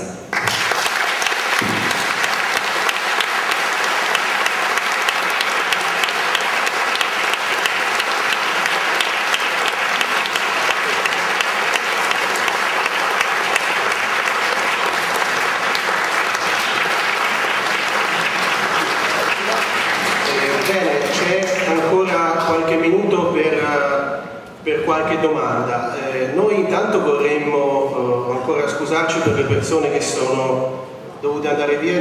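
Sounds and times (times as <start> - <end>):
audience applauding: 0.3 - 22.8.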